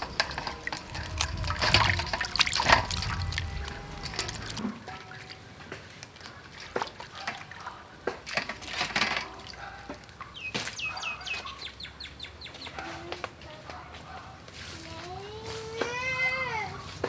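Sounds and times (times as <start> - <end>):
water splashing and dripping: 0.0 - 11.5.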